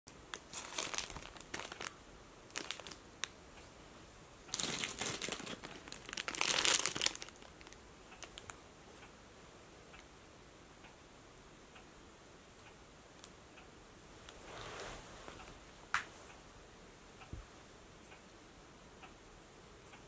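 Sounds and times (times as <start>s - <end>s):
plastic wrapper crinkling: 0.3s - 3.3s, 4.5s - 8.6s.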